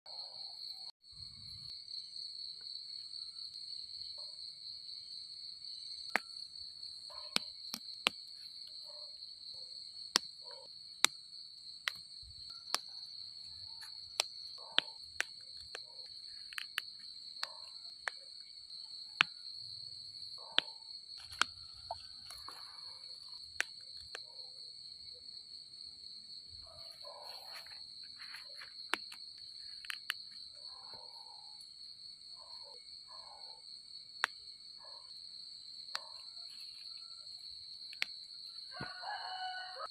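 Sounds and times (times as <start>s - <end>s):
night insects trilling: 0.1s - 39.9s
sharp clicks: 14.0s - 18.2s, 28.9s - 30.4s.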